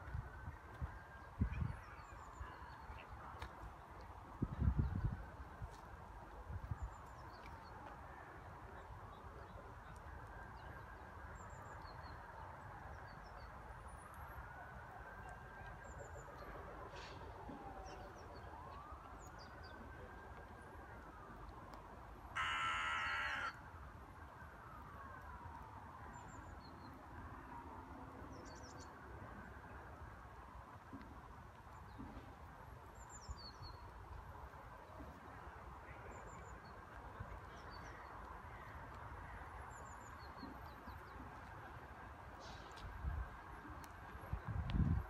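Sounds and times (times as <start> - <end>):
distant siren wailing: 9.7 - 28.3.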